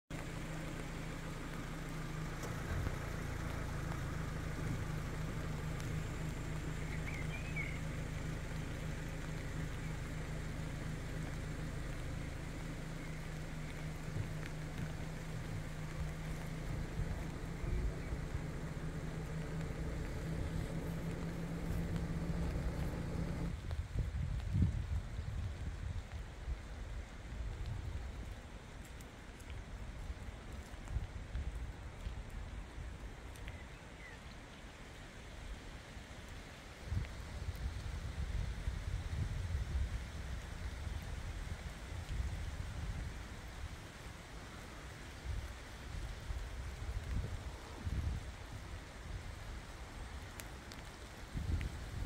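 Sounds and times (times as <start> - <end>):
low outdoor rumble: 0.0 - 52.0
light even hiss: 0.1 - 23.7
low motor hum: 0.1 - 23.7
steady rain hiss: 0.1 - 52.0.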